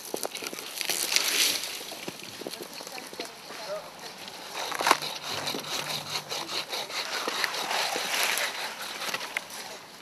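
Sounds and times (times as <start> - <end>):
hand saw cutting wood: 4.1 - 10.0.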